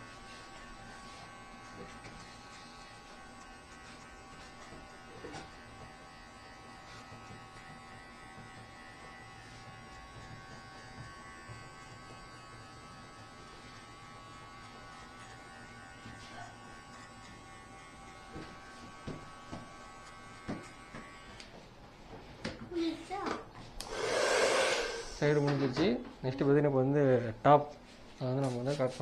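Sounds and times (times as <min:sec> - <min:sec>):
electric hair clipper buzzing: 0:00.0 - 0:21.6, 0:23.8 - 0:25.2.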